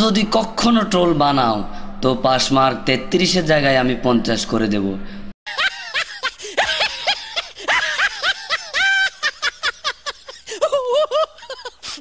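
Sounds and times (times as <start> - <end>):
person laughing: 5.5 - 12.0.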